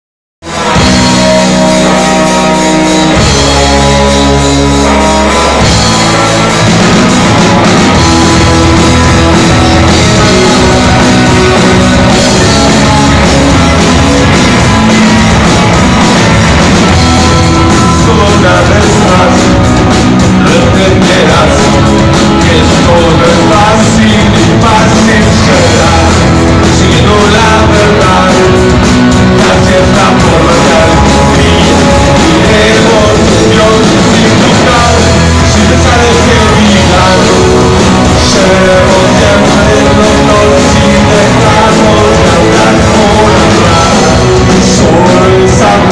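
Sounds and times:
rock band playing live: 0.4 - 45.9
person singing: 7.6 - 45.9.

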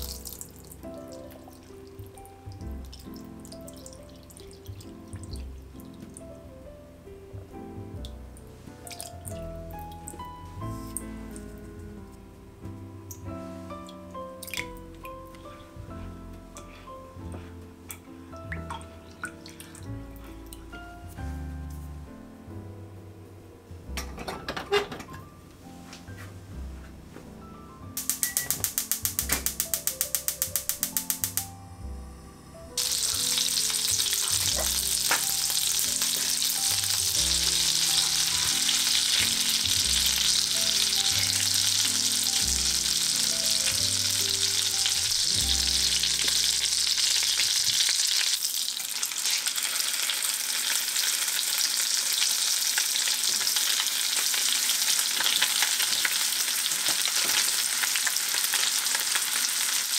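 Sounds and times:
food sizzling in hot oil: 0.0 - 6.3, 28.0 - 31.5, 32.8 - 59.9.

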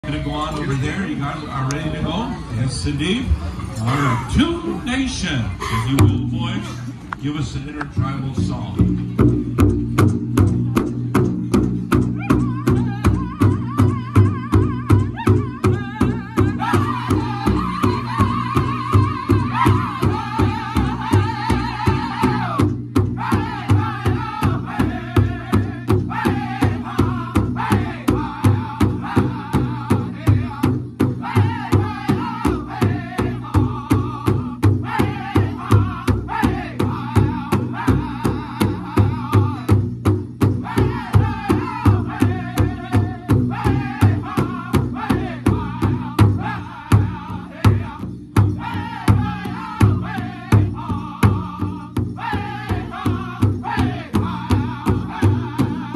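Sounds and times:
large drum beating: 5.9 - 6.7, 7.8 - 55.9
group singing: 12.3 - 55.9.

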